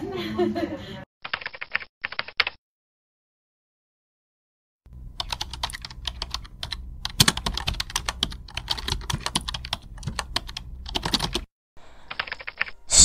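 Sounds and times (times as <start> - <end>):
keyboard typing clicks: 1.3 - 2.6, 5.2 - 11.5, 12.1 - 12.8.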